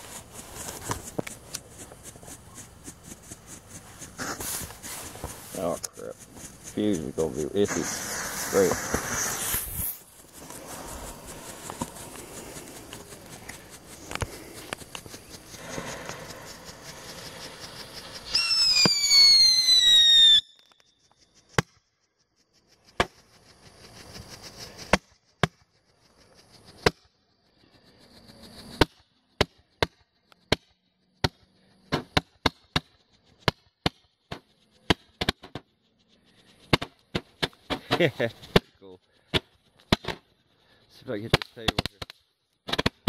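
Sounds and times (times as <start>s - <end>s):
faint firework hissing: 0.0s - 21.6s, 22.6s - 28.9s, 34.3s - 42.1s
firework pops: 7.6s - 16.3s, 18.3s - 20.9s, 36.7s - 38.7s, 39.3s - 40.2s, 41.3s - 43.0s
firework whistle falling in pitch: 18.2s - 21.0s.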